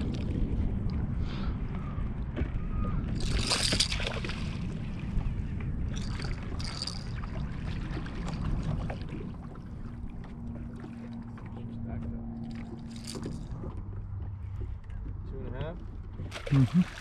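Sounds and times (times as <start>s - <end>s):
low wind: 0.0s - 17.0s
water noise around a boat: 0.0s - 17.0s
fish thrashing at the surface: 3.2s - 4.7s, 16.3s - 17.0s.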